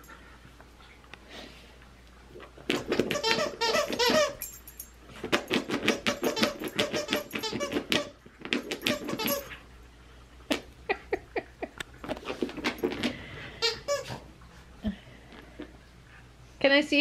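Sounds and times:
dog toy squeaking: 2.7 - 4.6, 5.4 - 9.6, 13.6 - 14.2.

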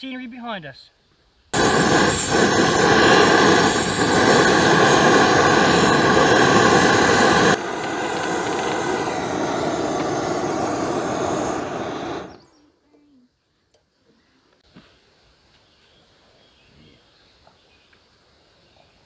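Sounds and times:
gas burner hissing: 1.6 - 12.6.

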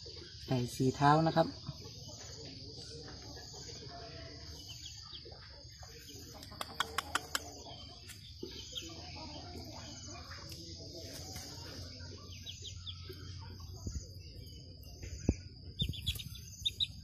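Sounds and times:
chick cheeping: 12.2 - 17.0.

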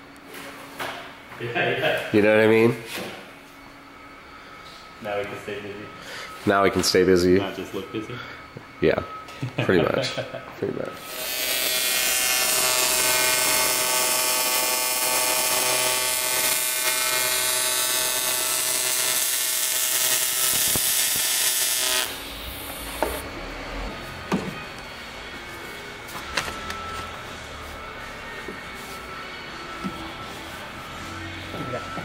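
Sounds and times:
welding arc buzzing and hissing: 11.0 - 23.4.

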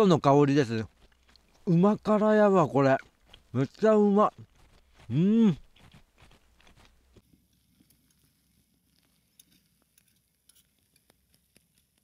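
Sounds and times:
faint clicks and ticks: 8.9 - 12.0.

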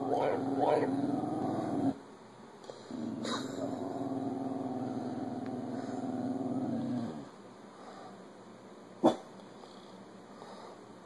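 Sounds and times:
dog growling: 0.0 - 2.0, 2.9 - 7.3.

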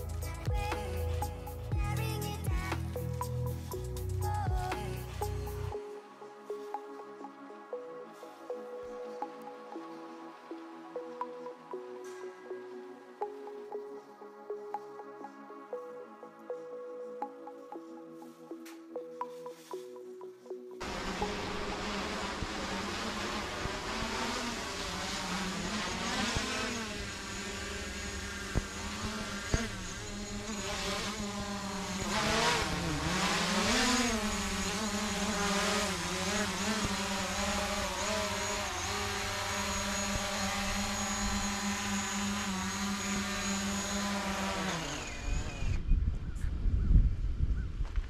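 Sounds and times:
drone propellers buzzing: 0.0 - 5.8, 20.8 - 46.1.

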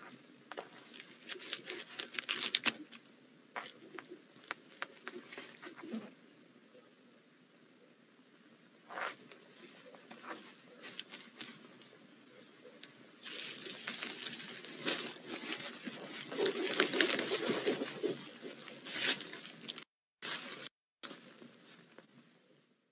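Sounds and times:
owl scratching in wood shavings: 13.2 - 19.8.

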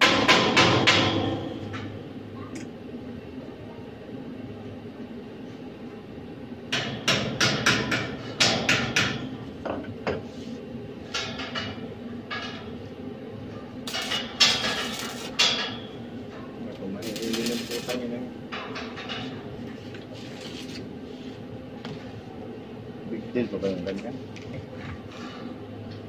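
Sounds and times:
hammer striking steel bars: 0.0 - 1.6, 6.8 - 9.3.

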